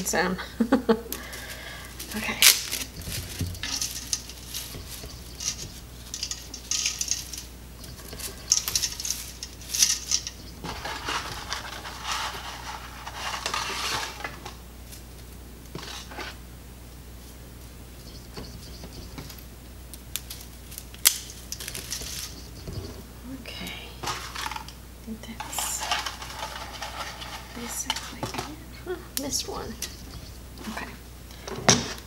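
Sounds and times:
pasta snapping: 0:01.1 - 0:16.4, 0:19.2 - 0:22.4
pasta rattling in metal pot: 0:01.2 - 0:14.6, 0:20.2 - 0:22.4, 0:25.4 - 0:28.5.

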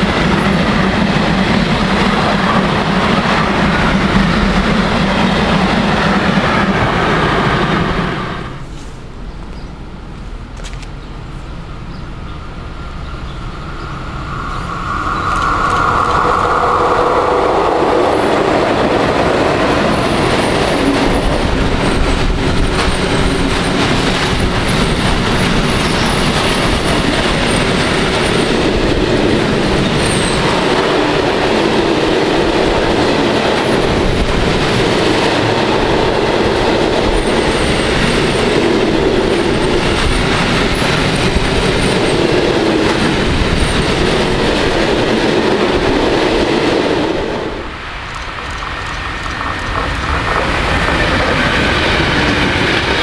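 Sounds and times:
train wheels rumbling on rails: 0:00.0 - 0:53.0
high wheel squeals: 0:12.9 - 0:18.6
clickety-clack over rail joints: 0:18.3 - 0:53.0.

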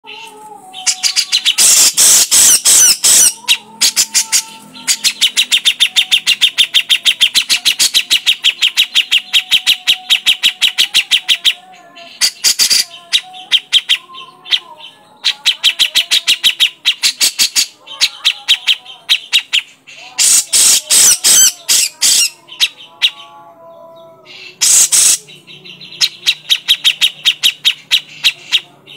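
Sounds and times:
bulbul calling loudly: 0:00.1 - 0:23.3, 0:24.4 - 0:28.9.

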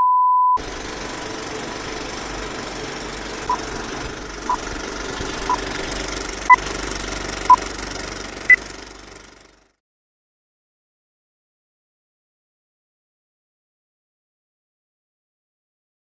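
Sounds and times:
short beeps: 0:00.0 - 0:00.6
film projector rattle and hiss: 0:00.6 - 0:09.7.

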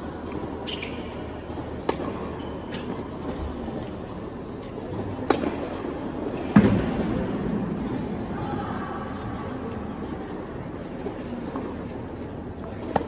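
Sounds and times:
murmur of arena crowd: 0:00.0 - 0:13.0
tennis balls struck by rackets: 0:00.6 - 0:03.1, 0:04.6 - 0:07.2, 0:12.6 - 0:13.0
tennis balls bouncing on hard court: 0:01.8 - 0:03.1, 0:04.6 - 0:07.2, 0:12.6 - 0:13.0.

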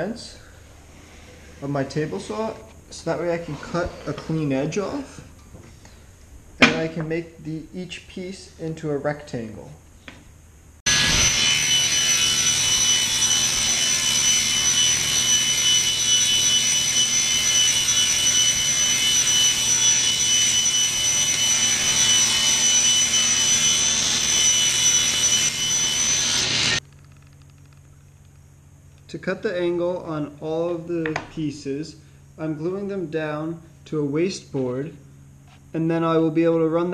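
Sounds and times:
table saw cutting wood: 0:10.9 - 0:26.8.

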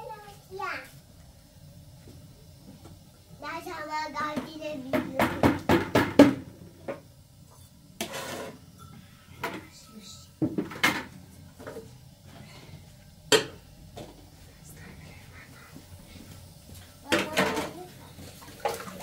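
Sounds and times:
plastic bucket and metal pots clattering: 0:08.0 - 0:08.6, 0:17.1 - 0:19.0.

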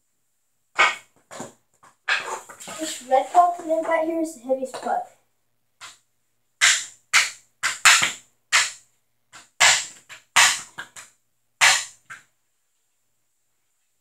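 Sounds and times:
hockey stick cracking on concrete: 0:00.8 - 0:03.8, 0:05.8 - 0:06.0, 0:06.6 - 0:12.3.

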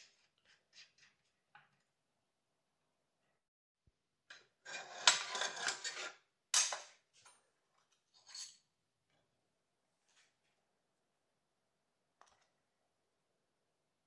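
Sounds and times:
metal tray scraping on stone: 0:04.6 - 0:06.2.

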